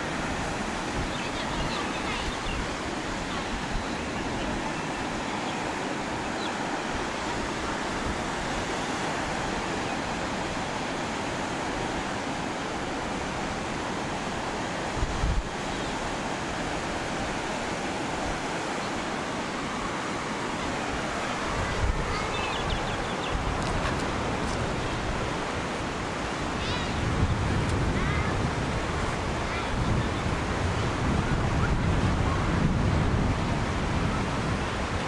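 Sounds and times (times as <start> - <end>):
surf washing up a beach: 0.0 - 35.0
wind thump on microphone: 27.1 - 33.4.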